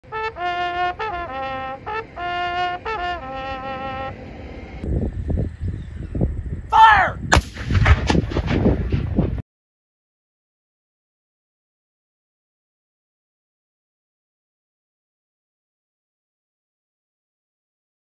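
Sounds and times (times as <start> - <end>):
bugle call: 0.0 - 4.2
sharp crack: 7.3 - 9.3
cannon booms: 7.3 - 9.4.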